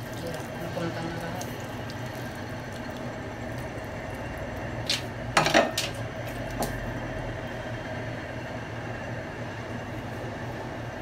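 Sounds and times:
broth pouring into pot: 0:00.0 - 0:08.4
pots clanking: 0:05.4 - 0:06.0.

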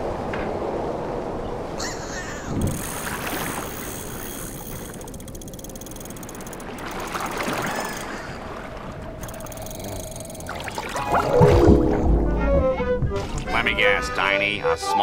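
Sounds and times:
water splashing and rushing: 0:02.4 - 0:14.2
loud whoosh: 0:11.1 - 0:13.8.

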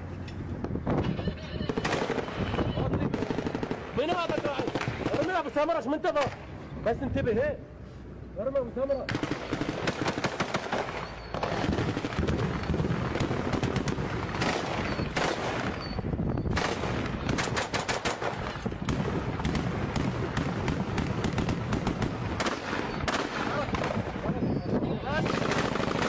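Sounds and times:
automatic gunfire: 0:09.1 - 0:15.8, 0:16.5 - 0:24.0, 0:25.2 - 0:26.0.

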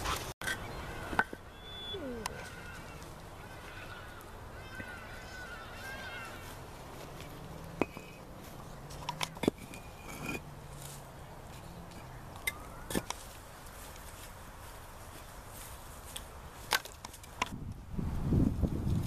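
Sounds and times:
faint animal calls: 0:00.8 - 0:06.6
concrete blocks knocking together: 0:07.8 - 0:08.2, 0:09.0 - 0:10.5.

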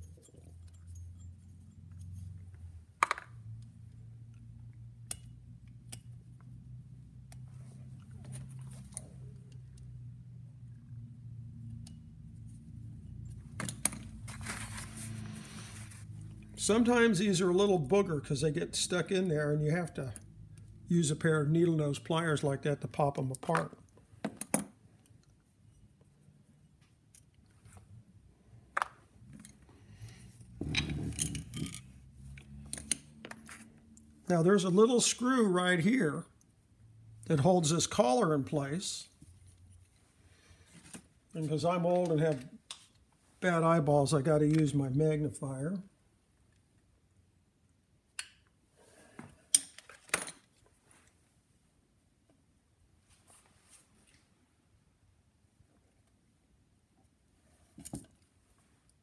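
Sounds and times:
metal scraping and clinking: 0:30.6 - 0:32.0.

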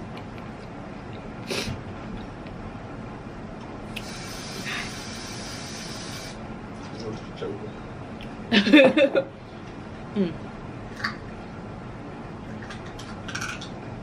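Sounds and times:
person sniffing: 0:01.5 - 0:01.8, 0:04.0 - 0:06.4
airy hissing breath: 0:04.0 - 0:06.4.

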